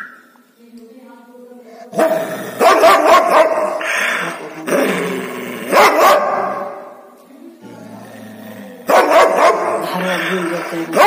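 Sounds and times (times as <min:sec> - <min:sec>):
dog barking loudly: 0:02.0 - 0:04.1, 0:05.7 - 0:06.7, 0:08.9 - 0:11.0.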